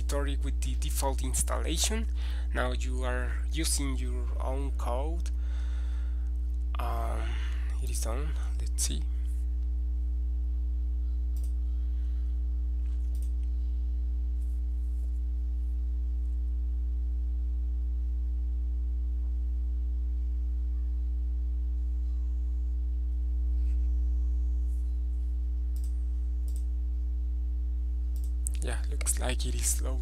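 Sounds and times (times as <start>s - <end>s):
low electrical hum: 0.0s - 30.0s
faint mouse clicks: 11.3s - 11.6s, 12.8s - 13.5s, 25.7s - 26.7s, 28.1s - 29.2s.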